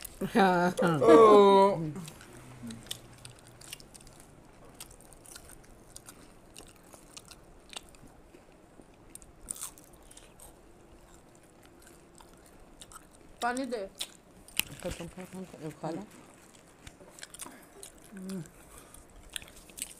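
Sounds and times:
people chewing crunchy food: 1.9s - 19.9s.

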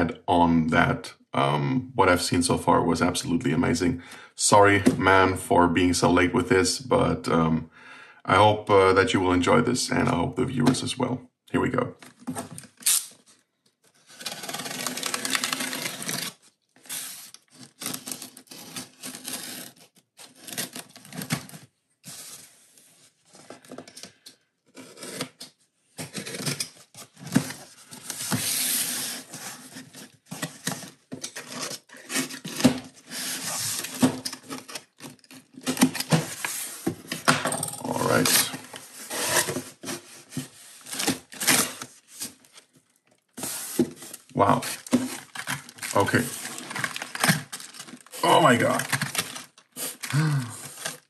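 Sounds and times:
packing tape tearing: 12.6s - 13.3s, 14.0s - 21.6s, 24.7s - 42.7s, 43.4s - 51.0s
cardboard rubbing and scraping: 14.0s - 23.8s, 26.0s - 37.3s, 37.9s - 42.7s, 43.4s - 51.0s
knife slitting cardboard: 37.9s - 42.4s.

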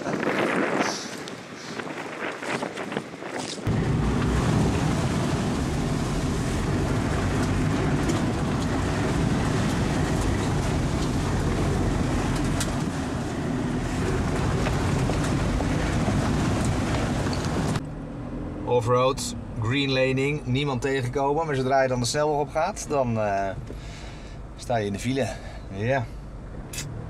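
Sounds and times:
muddy water washing over vehicle: 3.7s - 17.8s
off-road vehicle engine running: 3.7s - 20.4s.

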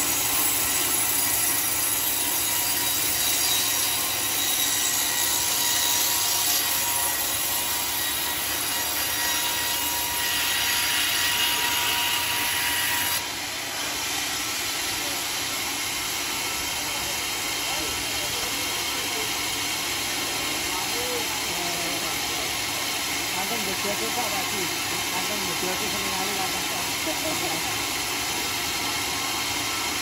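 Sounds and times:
band saw cutting wood: 0.0s - 30.0s.

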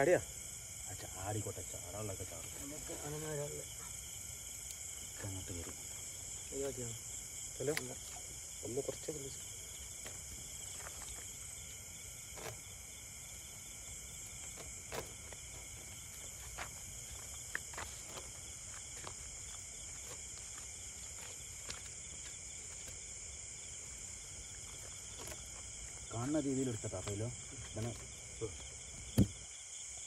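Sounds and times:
high-pitched insect chorus: 0.0s - 30.0s.

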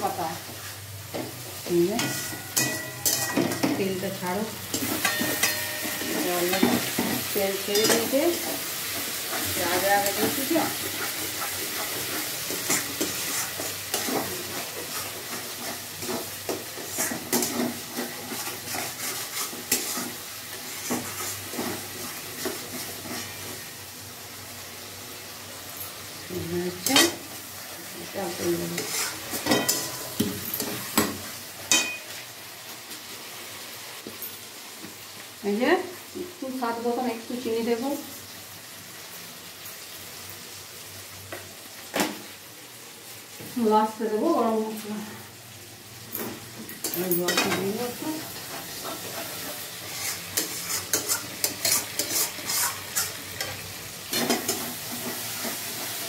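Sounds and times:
curry sizzling in oil: 0.0s - 56.0s
spatula scraping metal pan: 4.7s - 23.4s, 28.6s - 30.9s, 48.4s - 56.0s.

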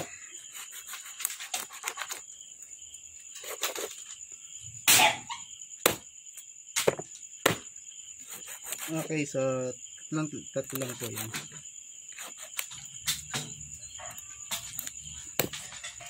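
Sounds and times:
knife chopping meat and bone: 5.8s - 6.0s, 6.8s - 7.7s.

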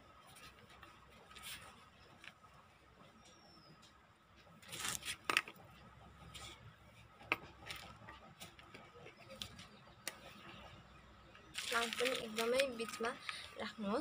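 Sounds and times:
rustling of soil and foliage: 4.5s - 5.6s, 11.3s - 14.0s.

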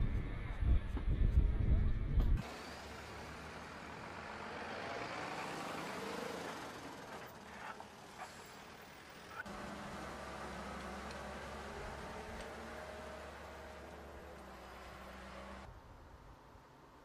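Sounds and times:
diesel engine running low: 2.3s - 15.7s
fire engines driving past: 2.4s - 15.7s.

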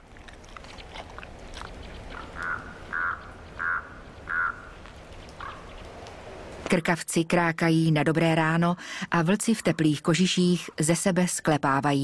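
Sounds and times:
raven croaking: 0.0s - 5.8s.

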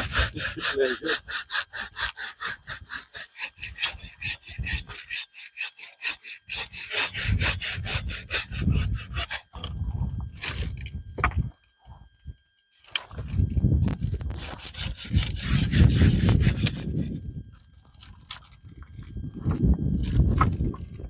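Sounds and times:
hand saw cutting branches: 0.0s - 9.6s, 14.3s - 17.1s.

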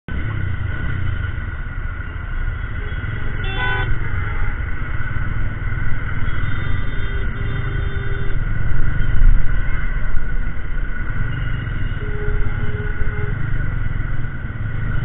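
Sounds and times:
street traffic rumble: 0.1s - 15.0s
vehicle horn honking: 2.9s - 4.5s, 6.2s - 8.4s, 11.6s - 13.4s.

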